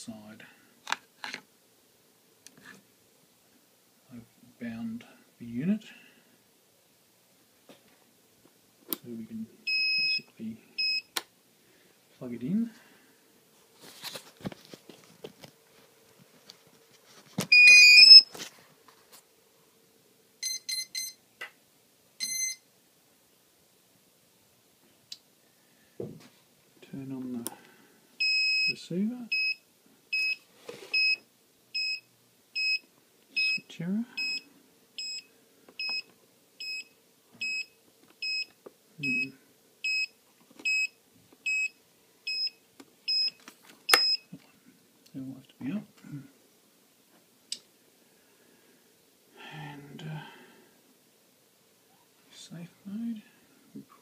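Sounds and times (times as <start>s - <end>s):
electronic beeps: 17.5s - 18.3s.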